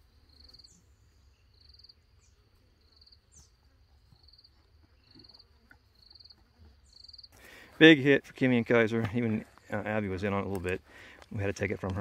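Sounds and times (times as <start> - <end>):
cricket chirping: 0.0 - 7.4.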